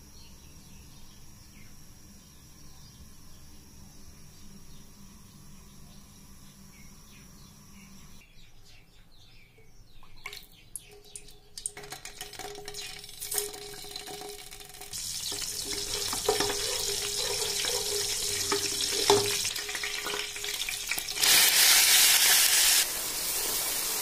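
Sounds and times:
hot oil sizzling in a pan: 11.6s - 24.0s
wooden spoon stirring: 15.2s - 20.5s.

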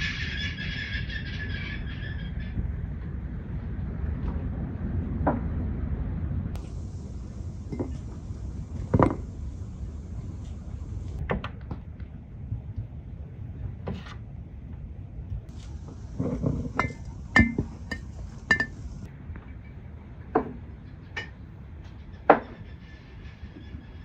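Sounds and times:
glass jars knocking on wooden table: 16.2s - 18.8s.

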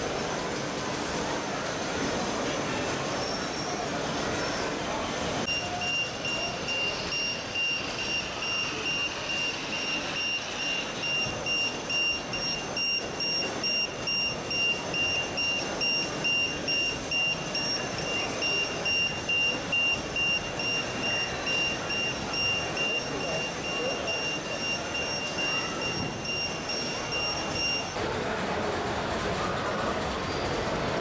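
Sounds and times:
reversing beeper: 5.5s - 28.0s.

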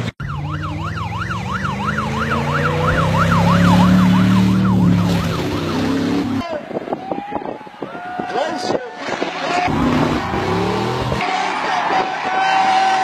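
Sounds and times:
electronic yelp siren: 0.2s - 6.4s.

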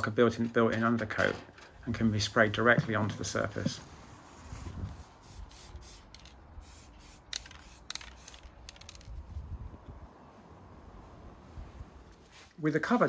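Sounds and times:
aerosol spray hissing: 4.9s - 8.5s.

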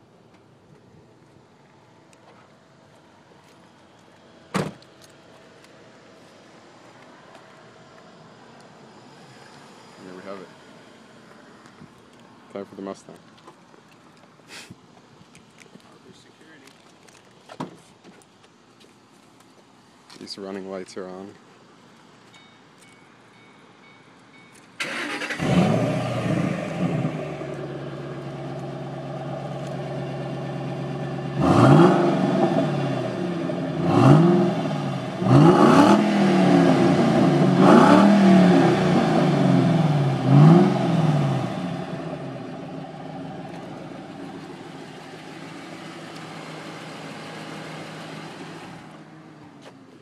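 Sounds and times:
car engine starting and idling: 24.6s - 50.0s
car engine revving: 24.8s - 48.8s.

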